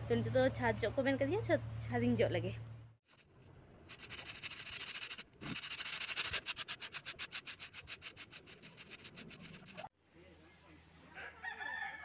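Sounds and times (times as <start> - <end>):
stiff broom sweeping concrete: 3.9 - 9.9.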